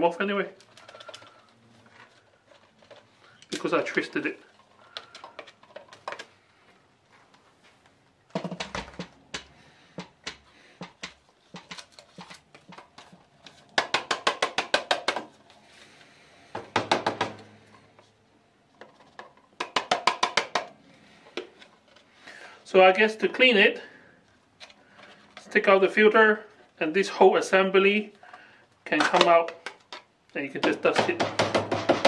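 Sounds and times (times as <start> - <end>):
rapid taps on plastic canister: 8.3 - 11.8, 13.7 - 15.3, 19.6 - 20.7, 30.6 - 32.0.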